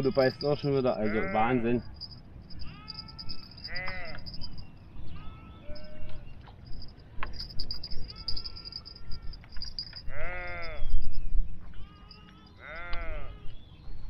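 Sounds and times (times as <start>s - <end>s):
small birds chirping: 0.0s - 14.0s
sheep bleating: 0.9s - 1.9s, 2.6s - 4.2s, 5.1s - 6.2s, 10.1s - 10.8s, 11.7s - 13.5s.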